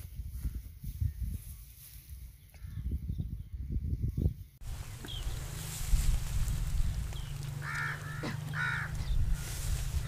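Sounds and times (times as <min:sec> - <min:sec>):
crow cawing: 0:07.6 - 0:09.3.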